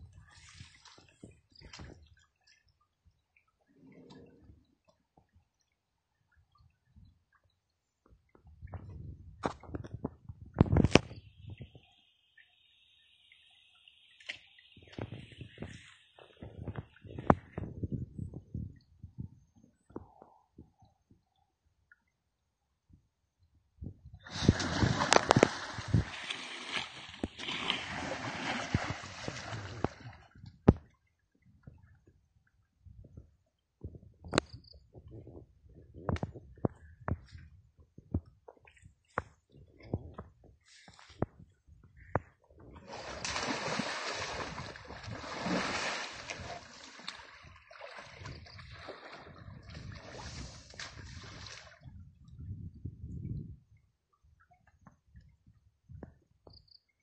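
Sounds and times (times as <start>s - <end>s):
water lapping and dripping: 0.0s - 22.4s, 24.2s - 35.0s, 36.1s - 52.5s
loud single splash: 24.3s - 29.5s, 42.9s - 48.1s
elephant splashing water: 24.3s - 30.2s, 42.8s - 51.8s.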